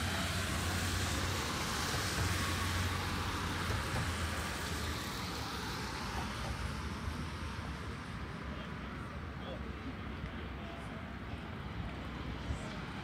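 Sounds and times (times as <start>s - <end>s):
tyres hissing on wet asphalt: 0.0s - 8.5s
vehicle engine rumble: 0.0s - 13.0s.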